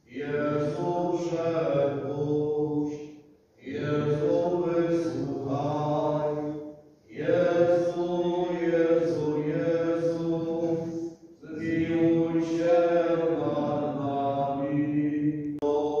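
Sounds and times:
voices chanting: 0:03.6 - 0:16.0.

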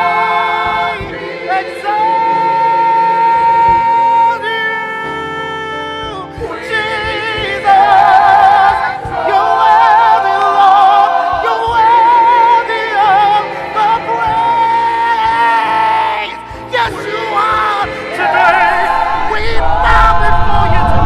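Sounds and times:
choir holding a chord: 0:00.0 - 0:04.0, 0:06.4 - 0:21.0
musical accompaniment: 0:00.0 - 0:21.0.

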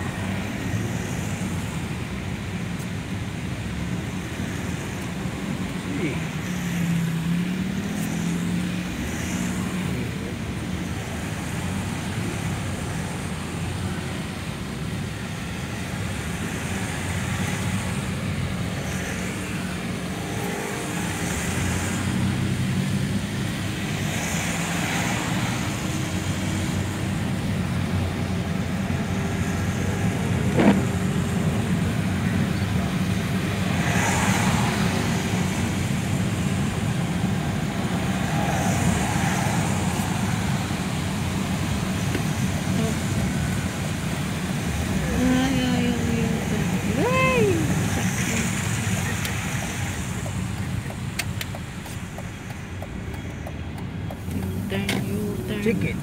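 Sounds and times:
engine and road hum: 0:00.0 - 0:56.0
tyre hiss on wet road: 0:33.6 - 0:53.0.

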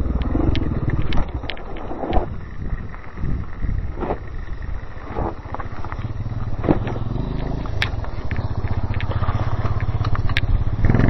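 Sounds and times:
motorcycle engine running roughly: 0:00.0 - 0:11.0
sharp clicks: 0:04.0 - 0:10.6.

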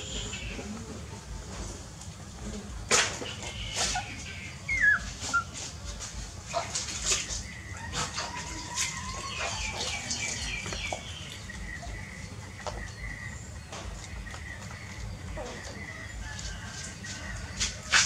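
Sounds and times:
puppies squeaking: 0:03.5 - 0:05.8.

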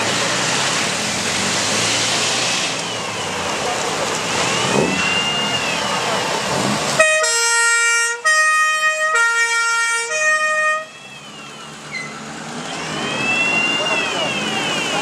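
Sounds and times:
two-tone siren: 0:04.3 - 0:06.4, 0:07.0 - 0:15.0.

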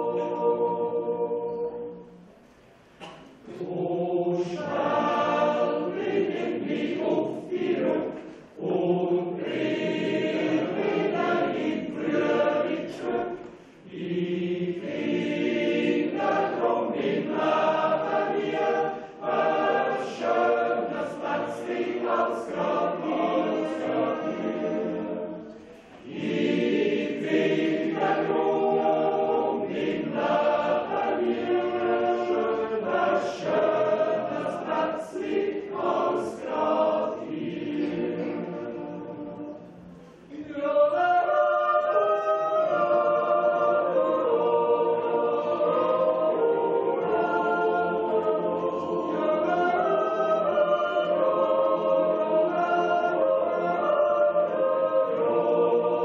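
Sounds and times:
choir yodeling in harmony: 0:00.0 - 0:02.3, 0:03.0 - 0:56.0.

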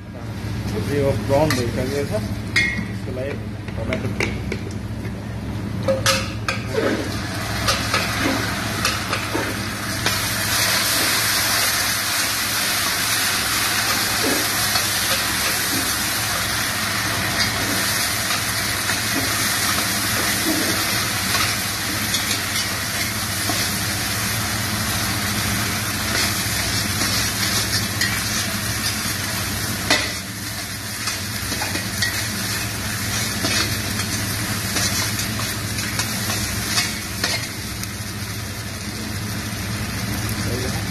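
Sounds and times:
food sizzling in a stockpot: 0:05.9 - 0:40.9.

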